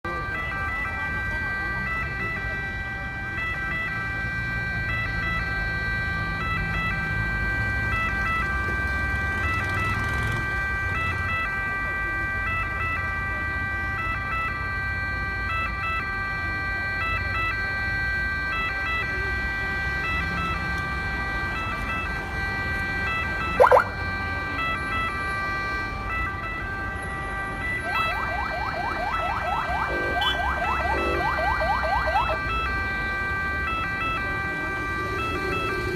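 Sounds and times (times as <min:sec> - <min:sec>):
ambulance siren: 0:00.0 - 0:35.9
city traffic rumble: 0:00.0 - 0:35.9
fast sweeping siren: 0:21.6 - 0:25.1, 0:26.1 - 0:34.2
siren whoop: 0:23.4 - 0:24.0, 0:27.7 - 0:32.7.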